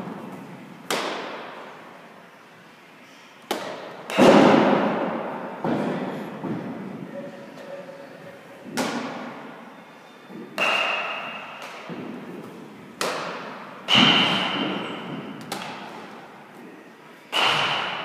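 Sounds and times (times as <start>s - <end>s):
baseballs smacking into gloves: 0.8s - 1.5s, 3.5s - 5.0s, 8.7s - 9.2s, 10.3s - 16.1s.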